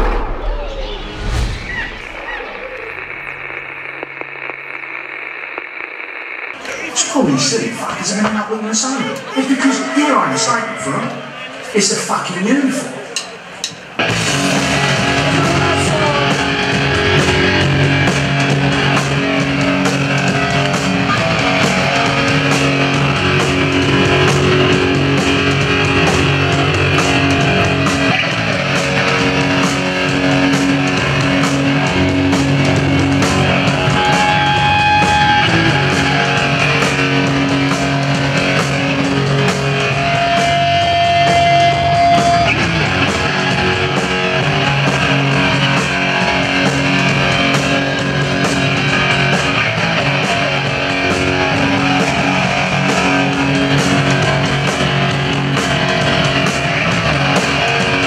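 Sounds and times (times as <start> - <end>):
live rock band playing: 12.6 - 58.0.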